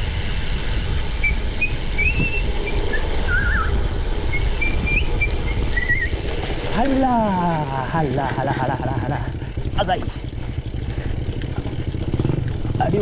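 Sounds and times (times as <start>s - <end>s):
wind rumble on microphone: 0.0s - 13.0s
high whistled notes: 1.2s - 6.2s.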